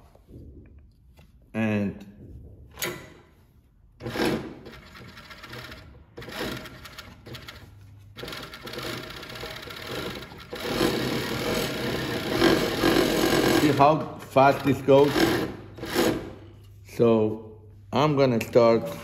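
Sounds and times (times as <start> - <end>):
industrial sewing machine stitching: 4.0 - 16.3.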